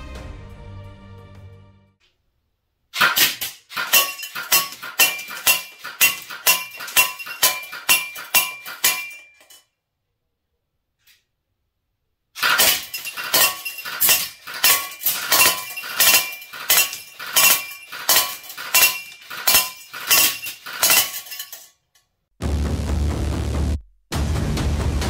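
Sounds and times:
pellets striking target: 0:03.0 - 0:09.5, 0:12.4 - 0:21.5.

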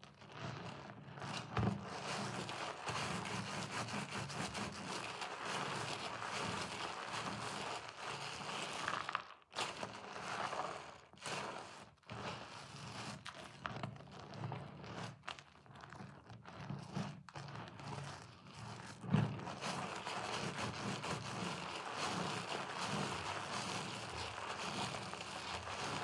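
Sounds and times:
soapy sponge squishing: 0:04.0 - 0:11.8, 0:18.8 - 0:26.0.

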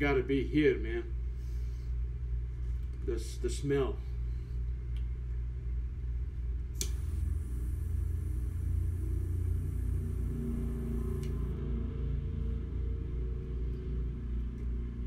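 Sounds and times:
low room hum: 0:00.0 - 0:15.0
jet flame rumbling: 0:06.8 - 0:11.5
torch lighter click: 0:06.8 - 0:11.5.

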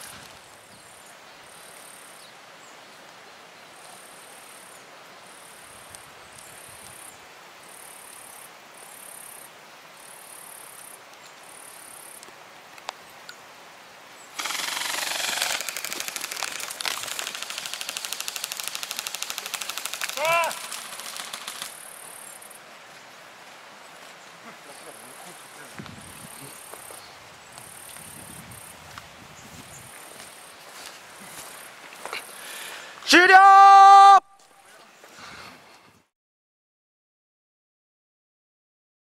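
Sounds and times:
insects chirping: 0:03.8 - 0:33.0
airsoft guns firing full auto: 0:14.4 - 0:21.8.

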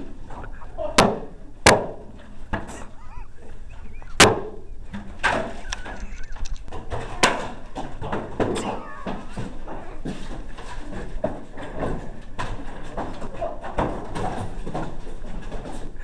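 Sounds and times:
faint shouts: 0:02.7 - 0:04.2, 0:08.6 - 0:10.1.

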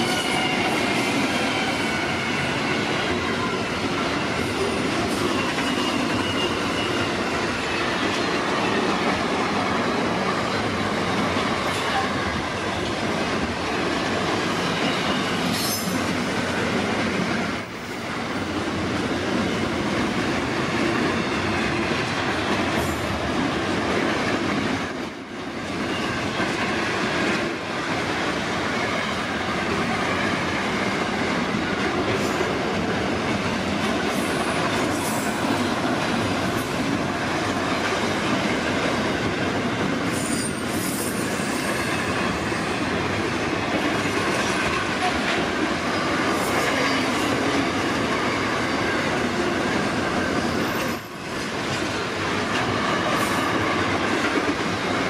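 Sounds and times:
train wagons rumbling and rattling: 0:00.0 - 0:55.0
high-pitched wheel squeal: 0:05.3 - 0:07.2.

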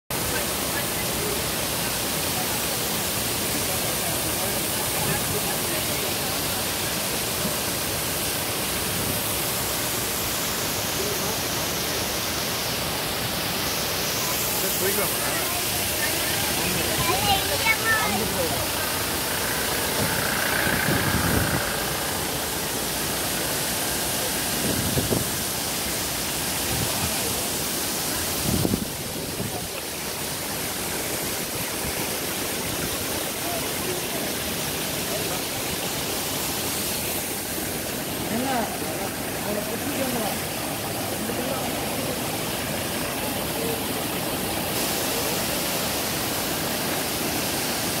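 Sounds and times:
waterfall rushing hiss: 0:00.1 - 0:48.0
wind buffeting microphone: 0:19.4 - 0:22.2, 0:24.6 - 0:25.5, 0:28.3 - 0:29.7.

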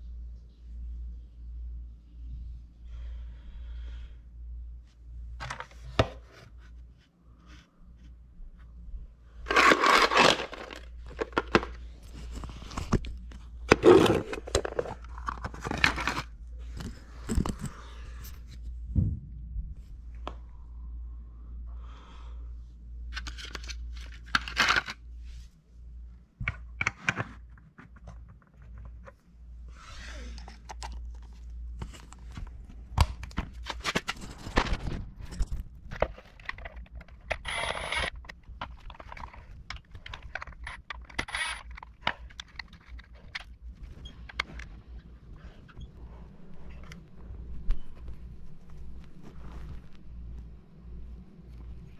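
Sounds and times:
tools scraping and rustling: 0:09.4 - 0:17.9, 0:33.5 - 0:45.7.

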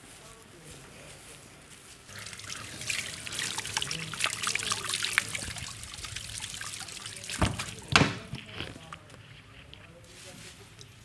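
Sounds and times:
shower water splashing into sink: 0:02.2 - 0:08.3.

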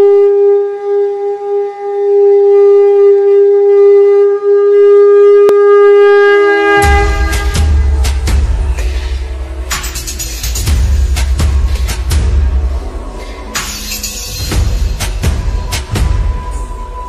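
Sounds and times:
loud wind instrument note: 0:00.0 - 0:17.0
music with heavy bass beat: 0:06.8 - 0:17.0.

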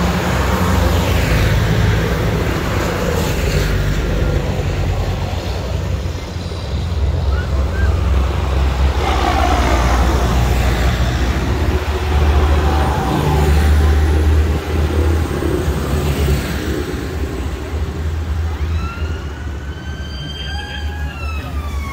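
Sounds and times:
tractor engines rumbling past: 0:00.0 - 0:21.9
wailing siren: 0:18.6 - 0:21.9.

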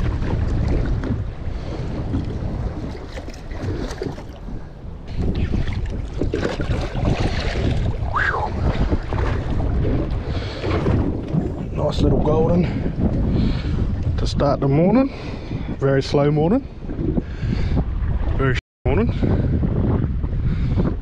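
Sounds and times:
sea water washing: 0:00.0 - 0:14.2
wind buffeting microphone: 0:00.0 - 0:21.0.

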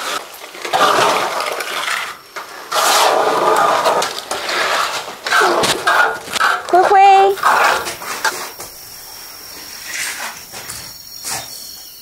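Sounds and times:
trowel scraping mortar on wall: 0:00.0 - 0:08.6.

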